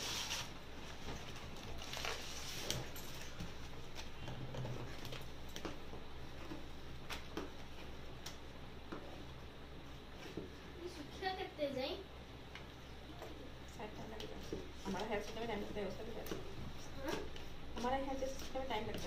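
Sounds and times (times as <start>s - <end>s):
paper rustling and crinkling: 0.0s - 5.2s.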